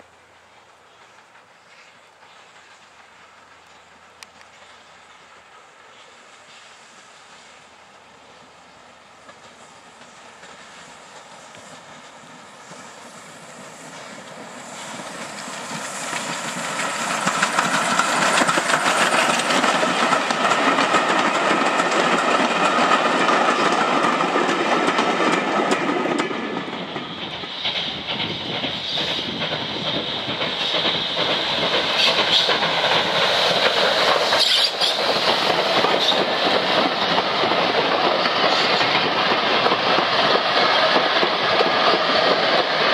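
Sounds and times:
steam train passing: 0.0 - 42.9
wheels clicking over rail joints: 13.9 - 42.9.

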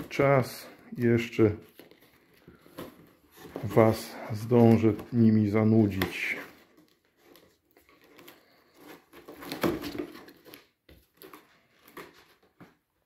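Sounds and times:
cardboard box being opened: 5.8 - 12.6.

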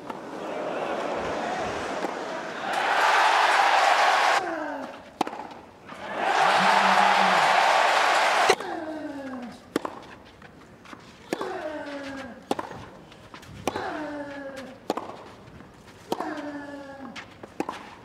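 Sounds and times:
tennis racket striking ball: 5.2 - 5.6, 9.7 - 10.1, 12.5 - 12.9, 14.9 - 15.3.

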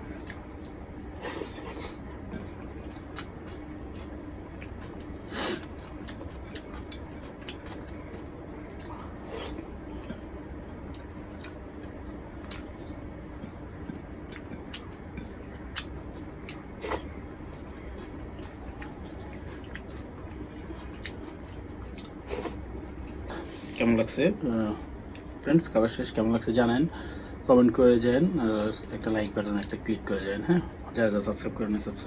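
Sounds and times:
steady low hum: 0.0 - 32.0
chewing: 0.2 - 23.8.

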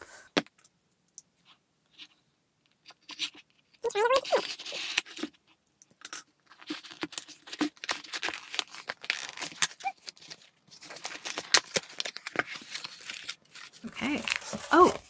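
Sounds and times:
paper rustling and crackling: 6.5 - 15.0
cardboard box being opened: 6.7 - 15.0.

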